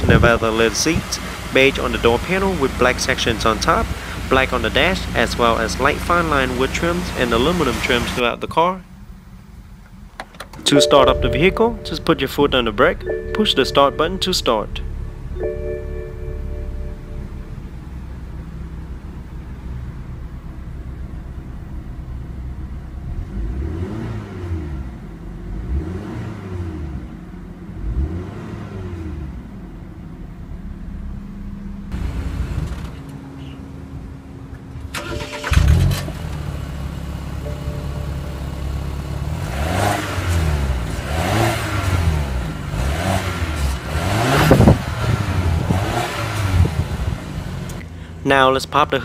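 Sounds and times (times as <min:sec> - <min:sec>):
car engine revving: 0:22.7 - 0:33.0, 0:35.0 - 0:48.2.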